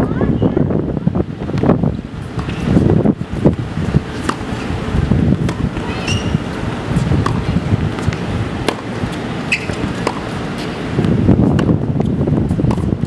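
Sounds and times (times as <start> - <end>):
wind rumble on microphone: 0.0 - 13.0
tennis balls struck by rackets: 2.3 - 2.9, 3.5 - 13.0.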